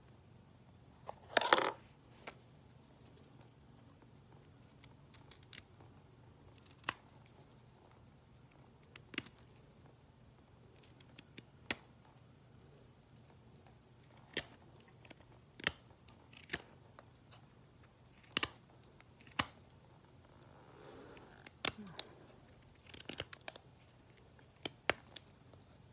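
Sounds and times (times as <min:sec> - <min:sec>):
knife carving hardwood: 0:14.0 - 0:19.7, 0:22.5 - 0:25.3.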